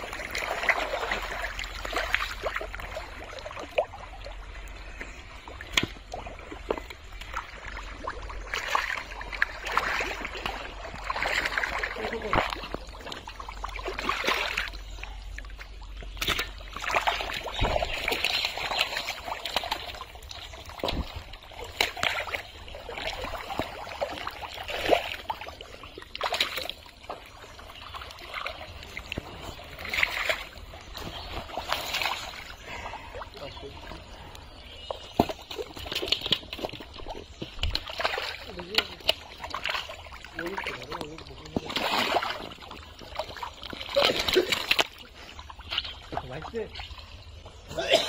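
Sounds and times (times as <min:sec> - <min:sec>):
mud squelching: 0:00.0 - 0:47.9
splashes and slaps in mud: 0:05.6 - 0:14.9, 0:15.6 - 0:20.1, 0:20.7 - 0:25.5, 0:26.2 - 0:27.1, 0:28.0 - 0:32.5, 0:35.0 - 0:46.9.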